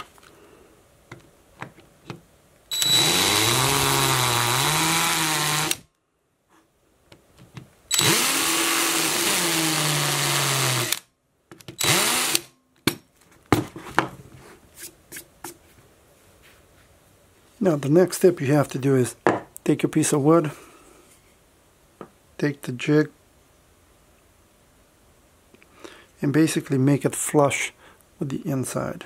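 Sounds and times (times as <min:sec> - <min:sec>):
power drill motor: 0:02.7 - 0:05.8, 0:07.9 - 0:11.0, 0:11.8 - 0:12.5.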